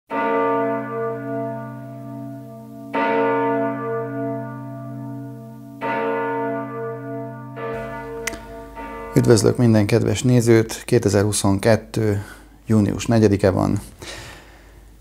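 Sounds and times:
large bell tolling: 0.1s - 10.6s.

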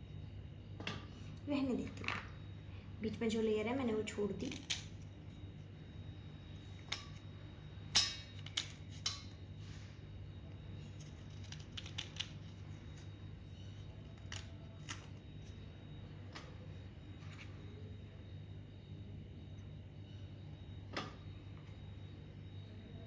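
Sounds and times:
low steady hum: 0.0s - 23.0s
clay cracking and crumbling: 10.8s - 15.6s.

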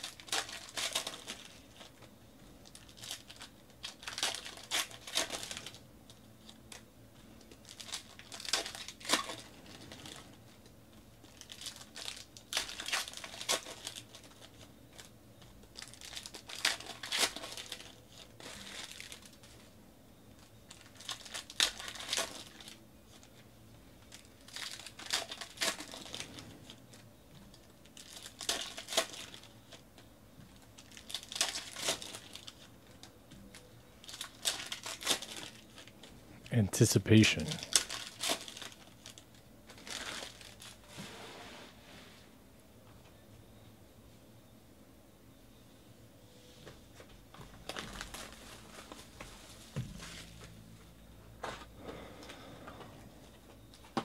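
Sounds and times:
foil wrappers tearing and crinkling: 0.0s - 2.0s, 2.6s - 10.4s, 11.2s - 19.7s, 20.4s - 23.4s, 24.0s - 33.1s, 34.0s - 36.0s, 37.4s - 40.8s, 47.6s - 50.5s
quiet handling of packs: 0.0s - 44.1s, 46.4s - 54.0s.

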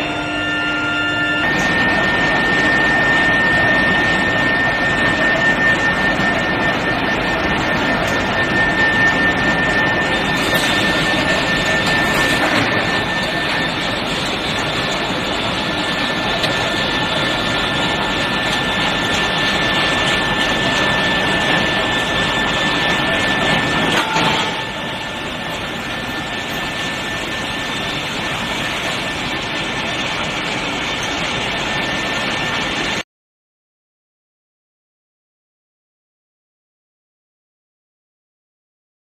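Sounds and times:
brief lower tone: 0.0s - 13.9s, 19.6s - 29.3s
high-pitched whine: 0.0s - 33.0s
loud rolling mill machinery: 0.0s - 33.0s.

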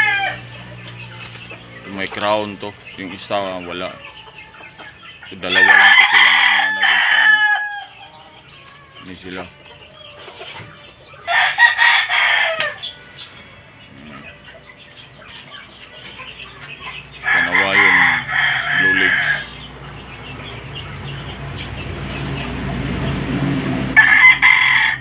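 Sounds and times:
rooster crowing: 0.0s - 0.6s, 5.4s - 9.2s, 11.2s - 14.3s, 17.2s - 19.6s, 23.9s - 25.0s.

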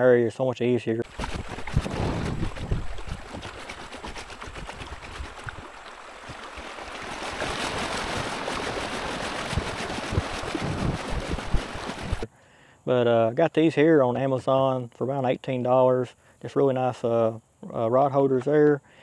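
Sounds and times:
river water rushing and splashing: 1.0s - 12.3s
wind buffeting microphone: 1.1s - 12.3s.

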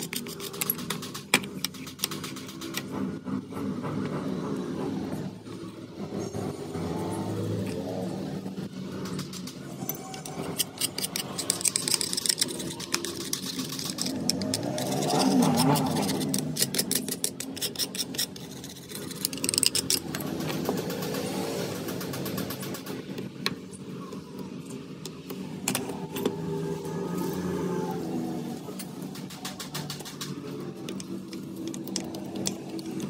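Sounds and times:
rapid metallic clicks: 0.0s - 3.0s, 8.5s - 23.4s, 28.8s - 33.0s
workshop machinery humming: 0.0s - 33.0s.

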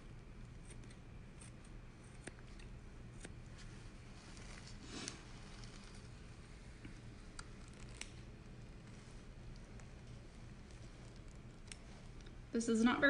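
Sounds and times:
scissors snipping: 0.6s - 3.4s, 11.2s - 12.3s.

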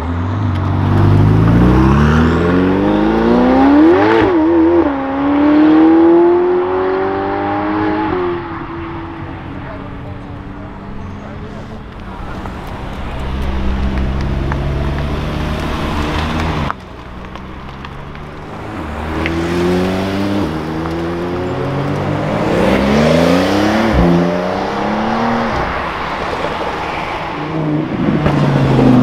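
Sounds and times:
sports car accelerating hard: 0.0s - 29.0s
deep steady car engine: 8.7s - 25.5s.

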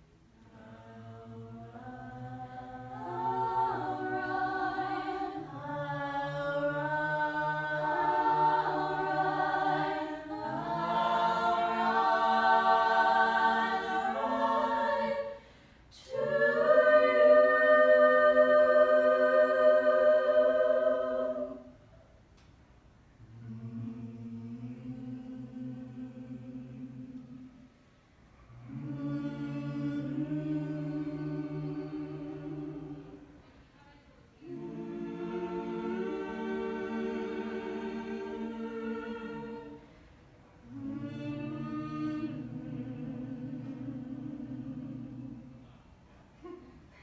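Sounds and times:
a cappella choir singing chords: 0.0s - 22.2s, 23.1s - 47.0s.

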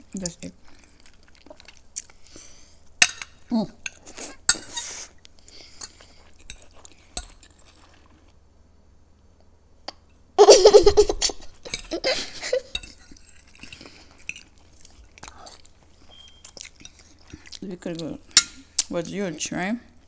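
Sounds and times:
girl giggling: 10.4s - 12.8s.

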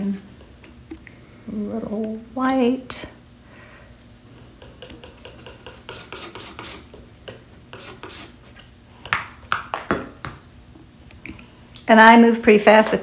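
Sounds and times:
palette knife scraping paper: 5.2s - 6.8s, 7.7s - 8.6s.

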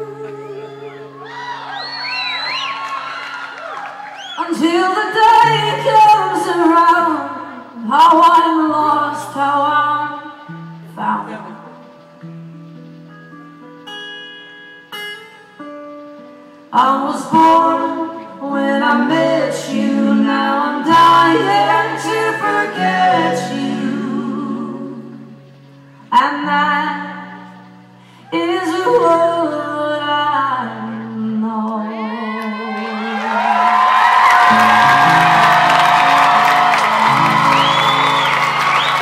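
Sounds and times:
voices singing in harmony: 16.8s - 25.5s, 30.6s - 39.0s.

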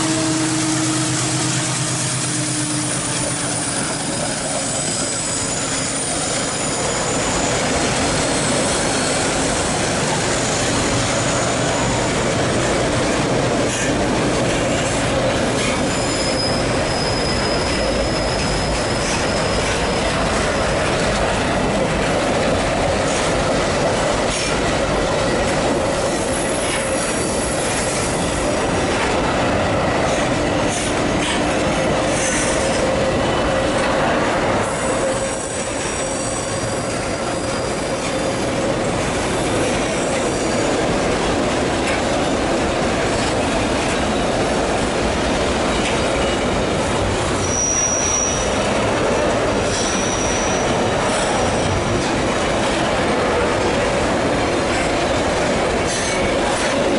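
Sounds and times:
freight train rumble and clatter: 0.0s - 56.9s
steel wheels squealing on rails: 0.0s - 56.9s.

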